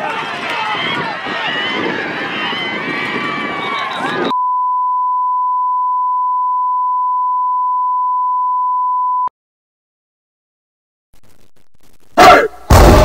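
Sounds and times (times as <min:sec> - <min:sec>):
steady test tone beep: 0:04.3 - 0:09.3.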